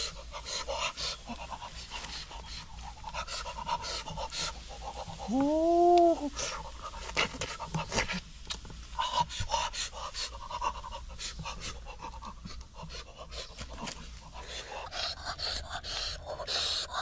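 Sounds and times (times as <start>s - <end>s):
man breathing noisily: 9.0s - 17.0s.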